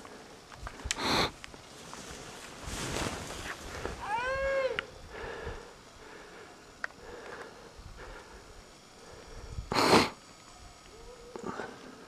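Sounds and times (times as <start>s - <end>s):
skis swishing through snow: 1.0s - 4.0s
skier whooping: 3.9s - 4.9s.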